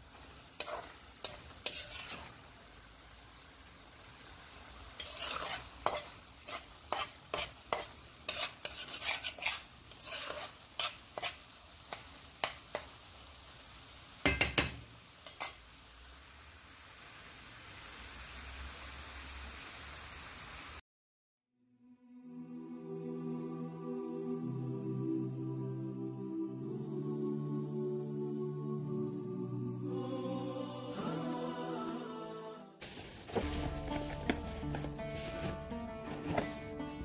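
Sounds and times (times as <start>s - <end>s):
mince sizzling: 0.0s - 20.8s, 32.8s - 37.0s
metal spatula scraping frying pan: 0.6s - 2.4s, 4.9s - 12.9s, 15.2s - 15.6s.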